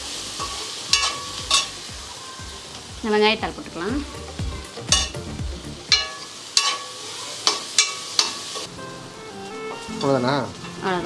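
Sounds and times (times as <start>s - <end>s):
chicken frying sizzle: 0.0s - 11.0s
spoon scraping a metal pan: 0.4s - 1.7s, 6.0s - 8.6s.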